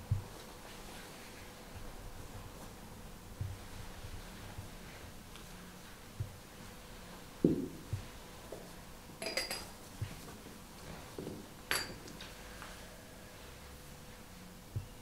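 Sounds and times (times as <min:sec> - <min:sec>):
glass and metal vessels clinking: 0:09.2 - 0:09.7, 0:11.7 - 0:12.1.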